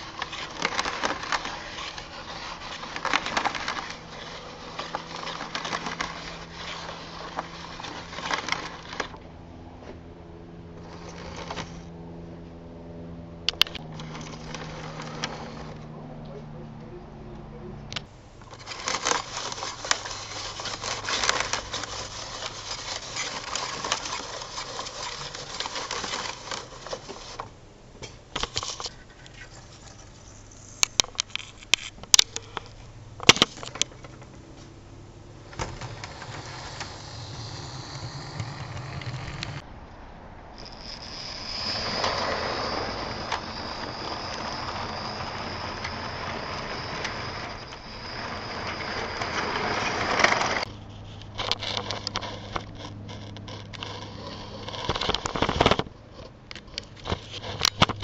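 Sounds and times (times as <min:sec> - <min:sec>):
model train rattling on track: 0:00.0 - 0:09.2, 0:10.8 - 0:11.8, 0:13.5 - 0:15.8, 0:17.9 - 0:34.5, 0:35.4 - 0:39.6, 0:40.6 - 0:50.7
thin high whine: 0:00.0 - 0:39.6, 0:40.5 - 0:58.0
sharp clicks: 0:13.4 - 0:34.5.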